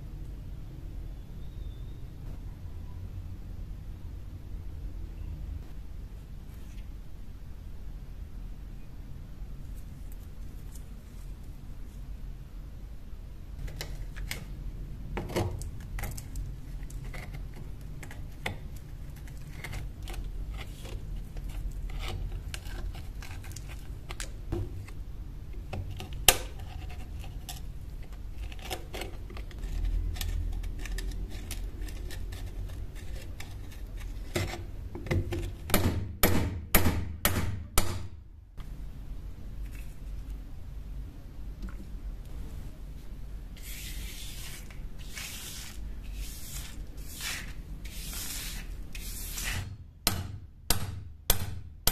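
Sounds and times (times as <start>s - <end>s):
chisel chipping and scraping rust: 15.6s - 24.9s, 25.7s - 35.8s
chisel strikes: 50.0s - 51.9s.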